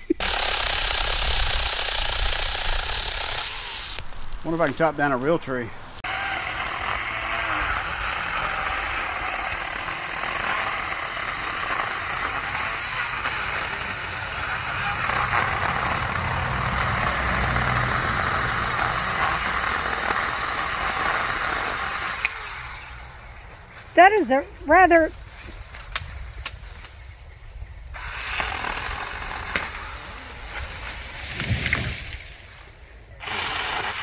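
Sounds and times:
cordless chainsaw cutting wood: 0.2 - 4.0, 6.0 - 23.4, 28.0 - 31.8, 33.2 - 34.0.

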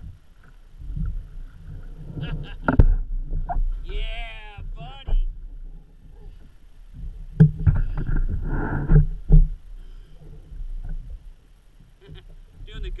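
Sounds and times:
knocks and thumps on kayak: 0.8 - 3.9, 4.6 - 9.6.

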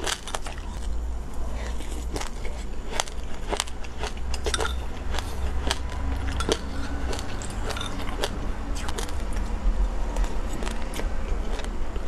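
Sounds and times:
metal spoon scraping seeds in glass: 4.3 - 9.1.

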